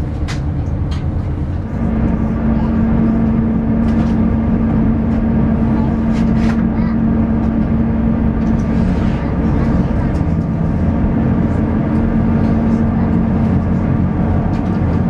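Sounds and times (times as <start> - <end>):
cabin engine rumble: 0.0 - 15.0
constant low hum: 0.0 - 15.0.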